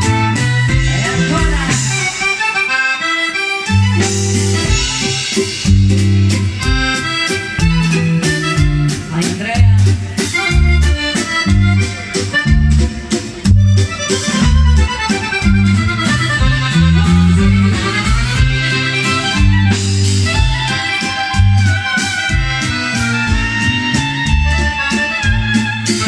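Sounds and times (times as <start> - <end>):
accordion dance music: 0.0 - 26.0.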